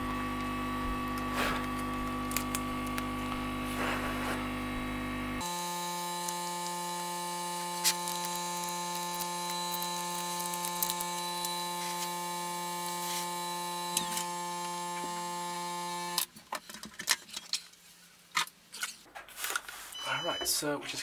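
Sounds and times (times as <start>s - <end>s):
electrical hum: 0.0s - 16.3s.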